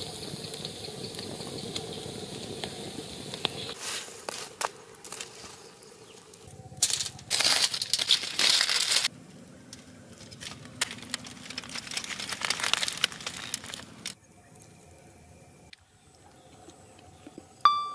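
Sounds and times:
aluminium foil crinkling: 6.4s - 9.1s, 9.7s - 15.0s.

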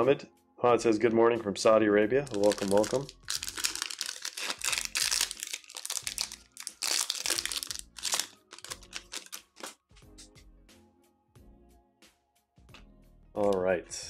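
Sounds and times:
cards rustling: 2.3s - 9.8s
foil wrapper crinkling: 2.3s - 9.8s.

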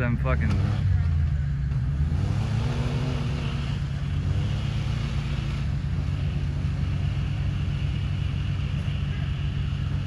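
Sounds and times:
engine revving hard: 2.0s - 7.1s.

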